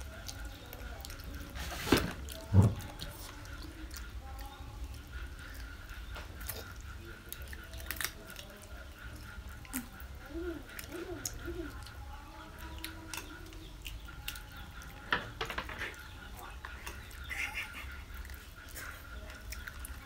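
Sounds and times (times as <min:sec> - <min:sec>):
wet chewing and gnawing: 0:00.0 - 0:20.0.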